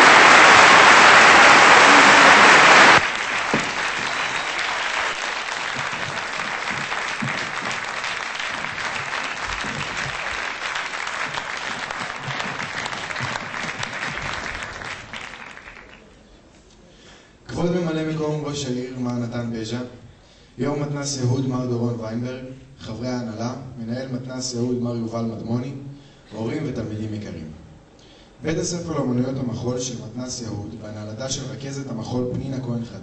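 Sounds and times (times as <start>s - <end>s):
audience applauding: 0.0s - 16.2s.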